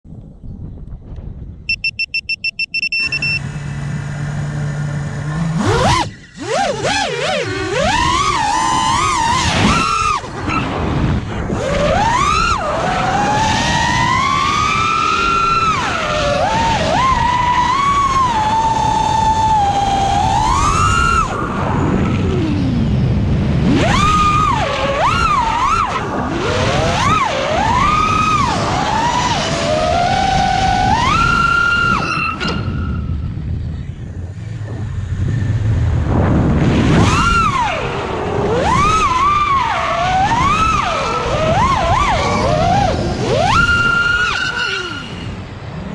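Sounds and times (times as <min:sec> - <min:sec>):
quadcopter motors whining: 0:01.8 - 0:45.9.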